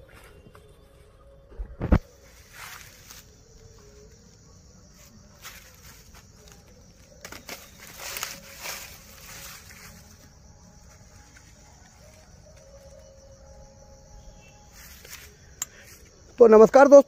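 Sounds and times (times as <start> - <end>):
high insect drone: 0.0 - 17.0
footsteps in dry leaves: 2.0 - 3.6, 5.0 - 12.4.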